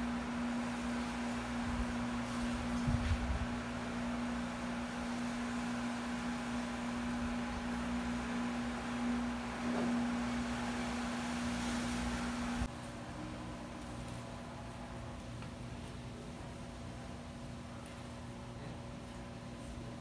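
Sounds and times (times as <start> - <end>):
faint hiss: 0.0 - 12.7
steady low hum: 0.0 - 20.0.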